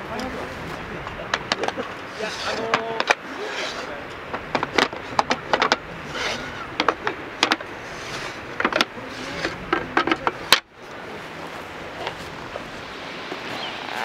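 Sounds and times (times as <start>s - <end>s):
background hiss: 0.0s - 14.0s
irregular clicks and knocks: 1.1s - 3.3s, 4.0s - 10.7s.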